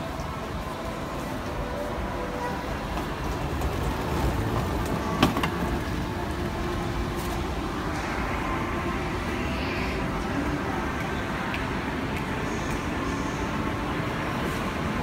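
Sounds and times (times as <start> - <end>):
shopping mall background noise: 0.0 - 15.0.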